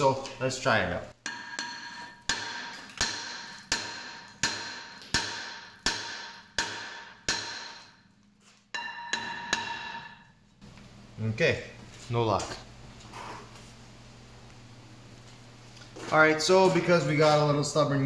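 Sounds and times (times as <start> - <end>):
hammer striking ringing metal rotor: 1.2 - 7.9, 8.8 - 10.2.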